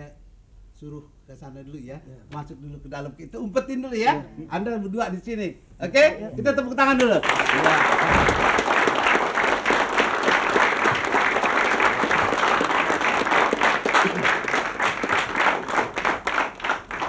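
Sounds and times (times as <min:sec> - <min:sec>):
audience applauding: 0:07.0 - 0:17.0.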